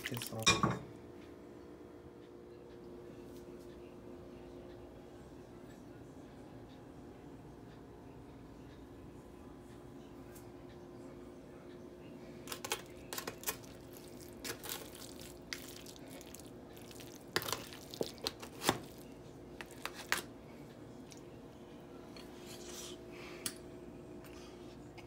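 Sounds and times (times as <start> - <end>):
faint steady hum: 0.0 - 25.0
foil crinkling: 12.5 - 19.0.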